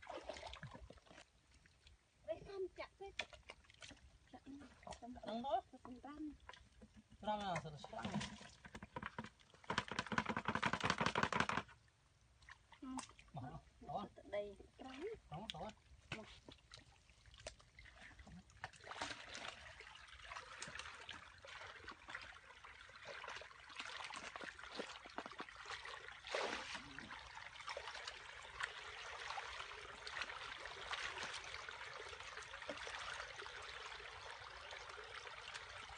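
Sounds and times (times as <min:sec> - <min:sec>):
pond water splashing: 0:00.0 - 0:35.9
loud splash: 0:26.2 - 0:28.0.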